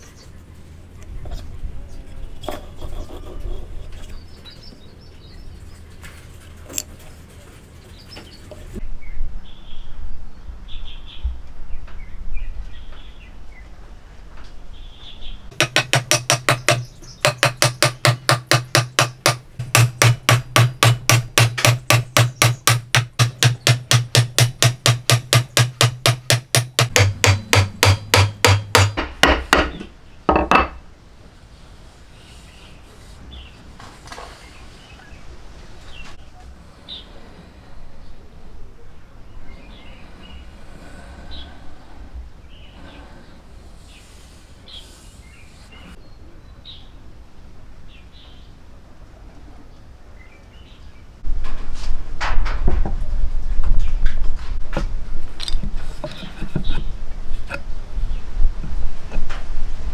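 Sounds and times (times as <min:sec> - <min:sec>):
hammer knocking on wood: 0:15.5 - 0:30.8
wood being handled: 0:15.5 - 0:30.8, 0:54.7 - 0:57.7.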